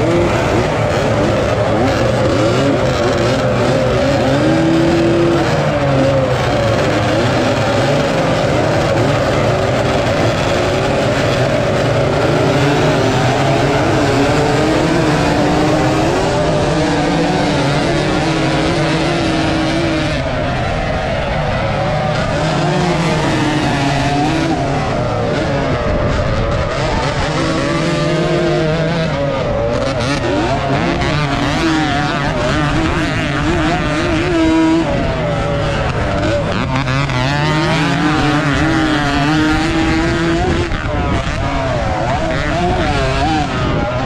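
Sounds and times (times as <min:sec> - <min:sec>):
motocross bike engine revving: 0:00.0 - 0:44.0
other racing motorcycles: 0:00.0 - 0:44.0.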